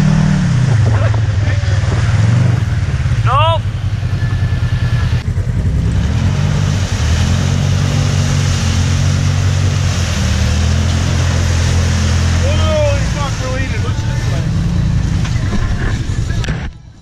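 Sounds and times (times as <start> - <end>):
engine running: 0.0 - 17.0.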